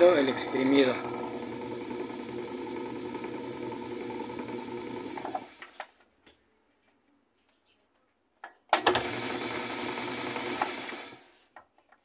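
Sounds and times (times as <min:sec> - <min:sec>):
washing machine spinning hum: 0:00.0 - 0:05.6.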